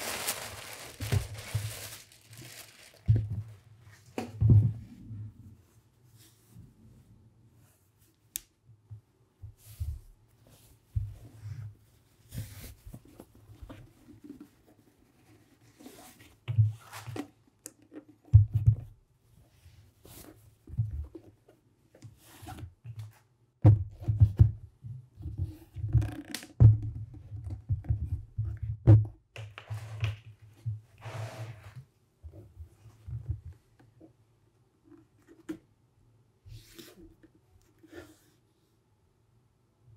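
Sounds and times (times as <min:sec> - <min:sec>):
leather rustling and scraping: 0:00.0 - 0:03.2.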